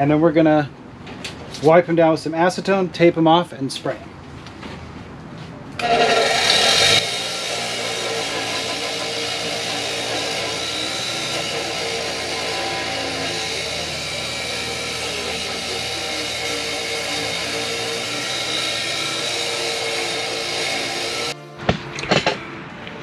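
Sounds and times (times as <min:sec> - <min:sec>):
wire wheel brush scrubbing metal: 0:05.8 - 0:21.4.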